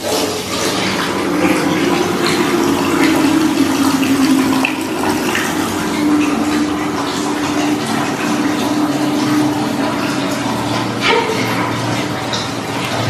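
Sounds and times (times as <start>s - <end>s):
water running from tap into bucket: 0.0s - 13.0s.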